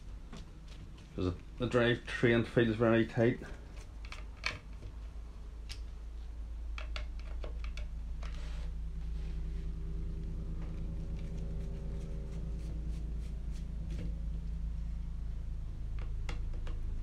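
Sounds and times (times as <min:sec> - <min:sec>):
helicopter drone: 0:08.9 - 0:16.0.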